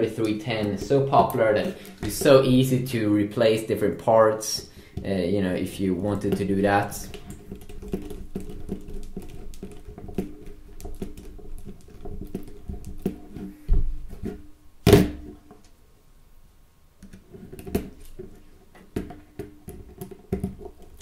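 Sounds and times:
plastic parts clicking and rattling: 0:06.1 - 0:13.5.

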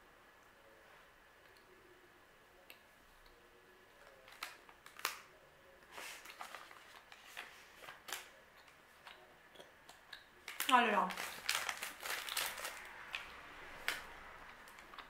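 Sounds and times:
plastic pouch crinkling: 0:06.0 - 0:08.3, 0:10.4 - 0:13.2.

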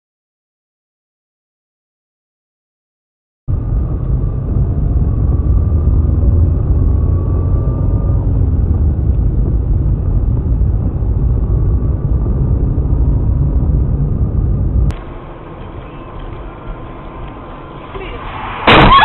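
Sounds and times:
car engine rumble: 0:03.5 - 0:19.0
faint whine: 0:03.5 - 0:19.0
tyres on wet road: 0:14.9 - 0:19.0.

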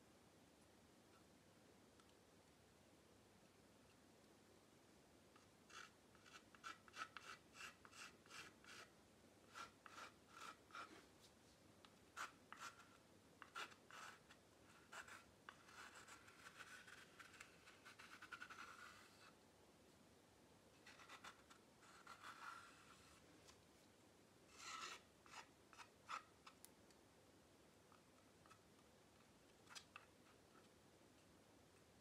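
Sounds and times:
palette knife scraping paint: 0:05.4 - 0:11.1, 0:12.1 - 0:19.4, 0:20.8 - 0:23.2, 0:24.5 - 0:26.6.

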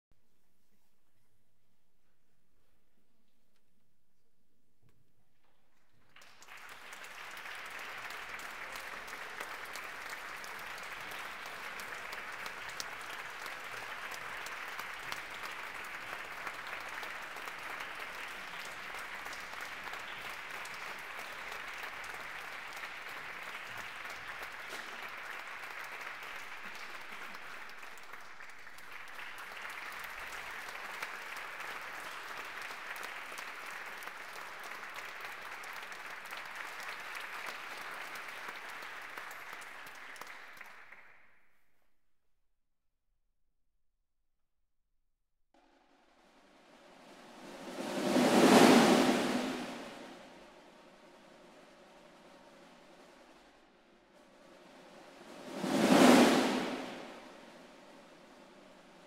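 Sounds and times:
audience applauding: 0:06.0 - 0:41.2.

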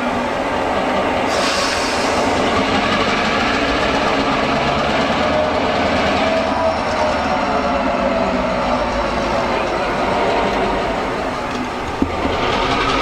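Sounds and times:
locomotive engine running: 0:00.0 - 0:13.0
wheels rolling over rails: 0:11.4 - 0:13.0.

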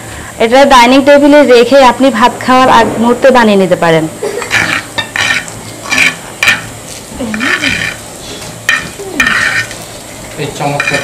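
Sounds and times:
utensil scraping in clay bowl: 0:04.5 - 0:08.1, 0:08.7 - 0:09.9, 0:10.7 - 0:11.0.

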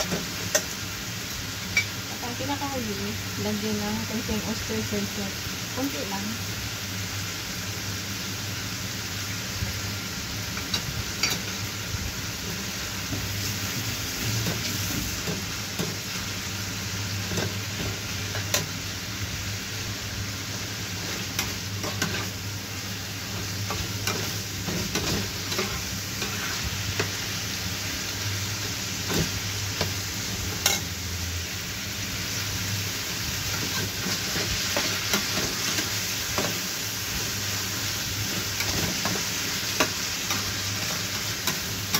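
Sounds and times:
food sizzling in a frying pan: 0:00.0 - 0:41.9.

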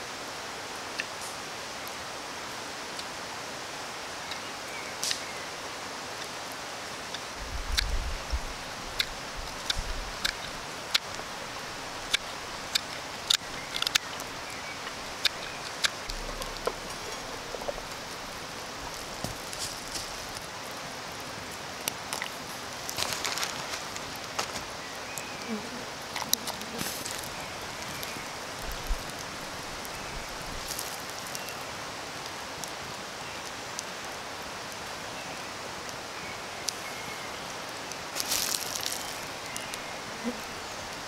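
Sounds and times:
steady hiss: 0:00.0 - 0:41.0
knife carving wood clicks: 0:08.9 - 0:11.2, 0:12.1 - 0:16.8.

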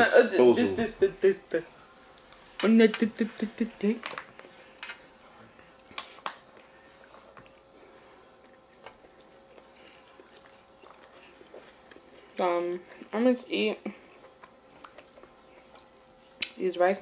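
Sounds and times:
faint steady hum: 0:00.0 - 0:17.0
chewing: 0:02.1 - 0:02.5, 0:05.6 - 0:13.2, 0:13.8 - 0:16.6.

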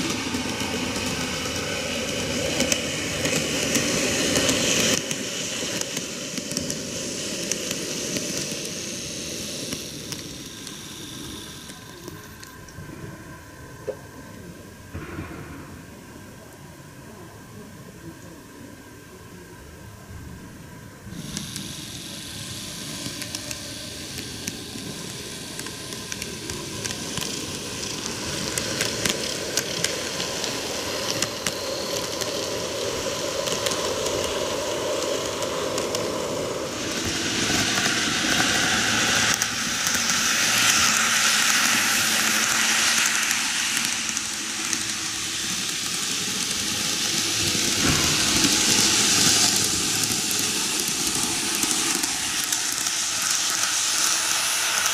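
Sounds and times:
model train whirring on track: 0:00.0 - 0:15.0, 0:15.8 - 0:54.9
wheels clicking: 0:21.1 - 0:54.9.

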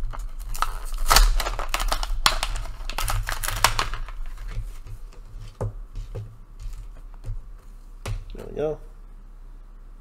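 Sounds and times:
plastic blister pack crackling: 0:00.0 - 0:05.6.

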